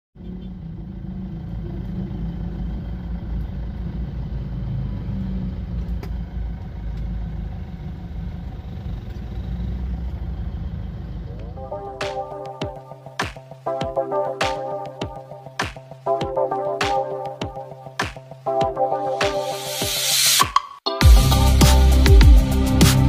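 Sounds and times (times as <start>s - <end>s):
car engine rumble: 0.2s - 13.2s
road noise: 0.2s - 20.4s.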